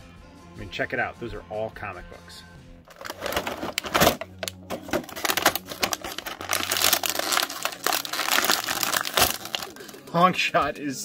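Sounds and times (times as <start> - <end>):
plastic packaging crinkling: 2.9 - 10.0.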